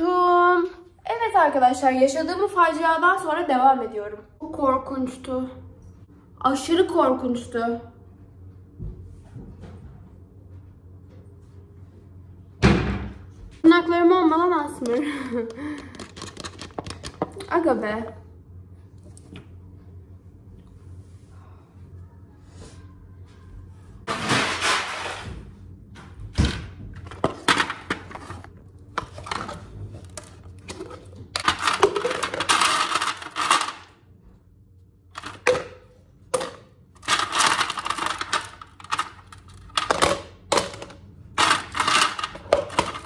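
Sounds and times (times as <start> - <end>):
ice cubes clattering in cup: 15.8 - 17.4, 30.1 - 33.9, 36.4 - 43.0.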